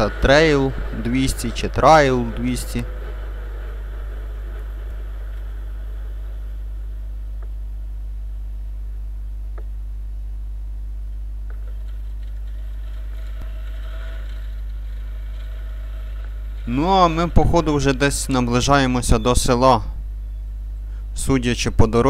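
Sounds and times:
motorcycle engine rumble: 0:00.0 - 0:10.1.

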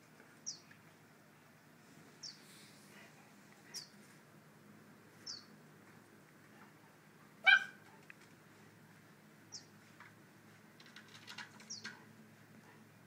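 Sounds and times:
bird chirping: 0:00.4 - 0:00.8, 0:02.2 - 0:02.5, 0:03.7 - 0:04.0, 0:05.2 - 0:05.6, 0:09.5 - 0:09.7, 0:11.6 - 0:12.0
puppy yipping: 0:07.4 - 0:08.0.

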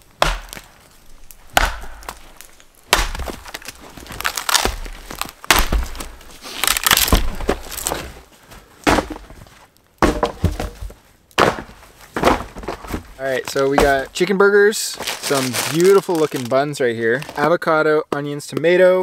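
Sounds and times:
wood cracking and splintering: 0:00.0 - 0:17.6
hatchet chopping log: 0:00.2 - 0:00.7, 0:01.5 - 0:08.0, 0:08.8 - 0:09.2, 0:10.0 - 0:10.8, 0:11.4 - 0:12.4.

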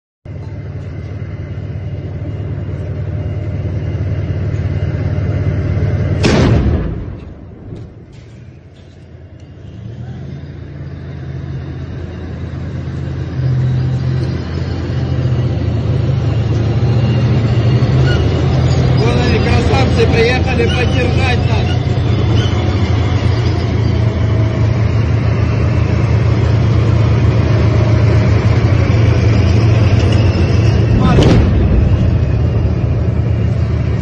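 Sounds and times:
tank engine droning: 0:00.3 - 0:34.0
very loud blast: 0:06.2 - 0:08.1, 0:30.7 - 0:34.0.

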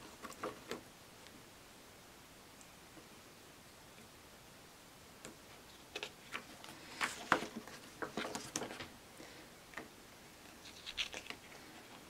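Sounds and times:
pages turning: 0:10.5 - 0:11.6.

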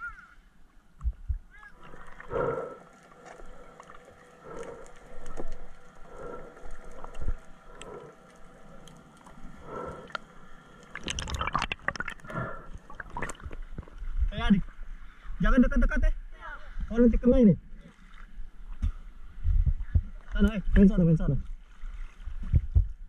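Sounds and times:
muffled underwater swishing: 0:01.6 - 0:15.3
underwater bubbling and gurgling: 0:01.7 - 0:15.3.

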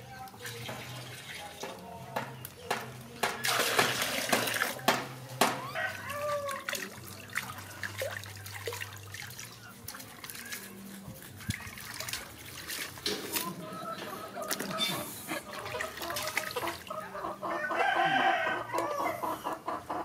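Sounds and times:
water splashing and sloshing: 0:00.1 - 0:02.2, 0:02.8 - 0:18.4
water pouring into plastic tub: 0:03.4 - 0:04.8, 0:06.4 - 0:13.5.

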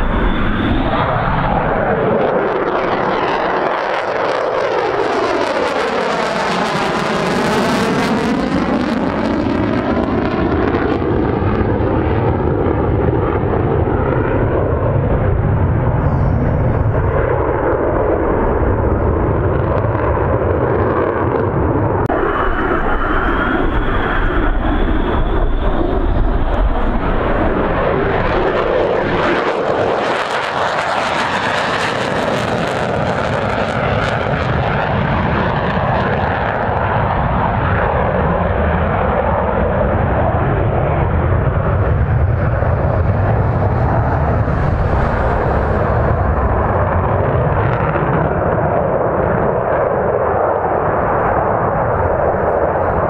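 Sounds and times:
jet engines roaring: 0:00.0 - 0:53.0
thin rising whine: 0:22.0 - 0:27.8.

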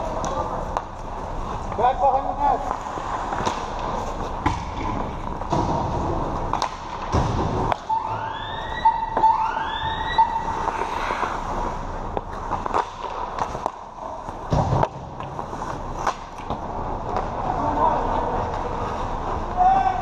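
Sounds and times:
skates scraping ice: 0:00.0 - 0:20.0
rising siren-like tone: 0:07.8 - 0:10.5.

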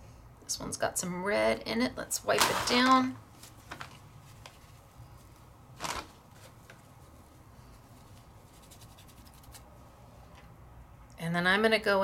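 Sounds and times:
paintbrush being wiped: 0:06.4 - 0:09.7.

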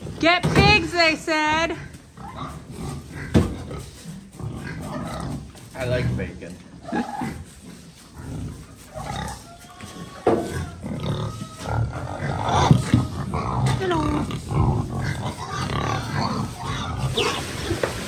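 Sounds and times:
pigs grunting: 0:01.6 - 0:18.0
pig squeals: 0:02.2 - 0:03.9, 0:06.8 - 0:07.5, 0:08.4 - 0:17.8.

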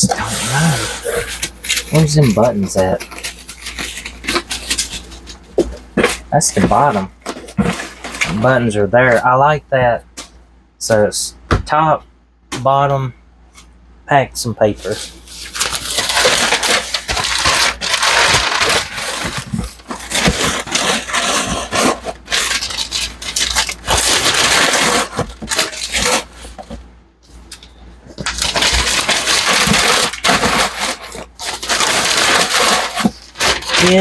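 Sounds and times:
paper crumpling: 0:00.0 - 0:05.4, 0:14.8 - 0:26.8, 0:28.2 - 0:34.0.

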